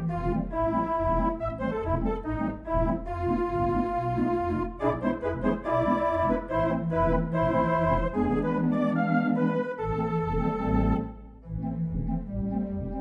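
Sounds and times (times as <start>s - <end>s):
organ chords with pulsing bass: 0.0s - 13.0s.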